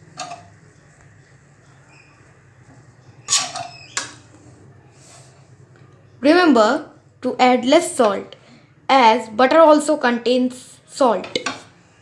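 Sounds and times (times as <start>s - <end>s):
metal spatula scraping a wok: 3.2s - 4.2s.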